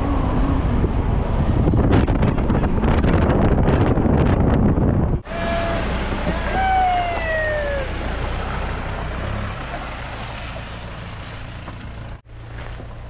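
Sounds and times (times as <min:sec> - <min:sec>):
wind buffeting microphone: 0:00.0 - 0:09.5
road and engine noise: 0:00.0 - 0:13.0.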